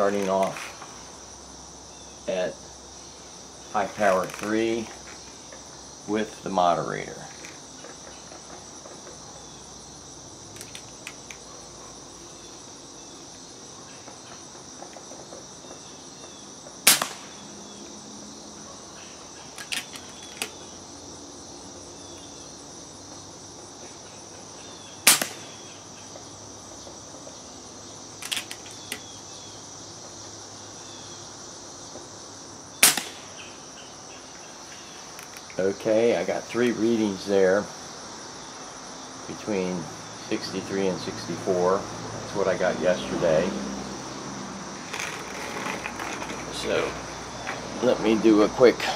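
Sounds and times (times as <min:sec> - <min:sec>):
high insect chirping: 0:00.0 - 0:48.9
air rifle shots: 0:16.8 - 0:17.4, 0:25.0 - 0:25.6, 0:32.8 - 0:33.4.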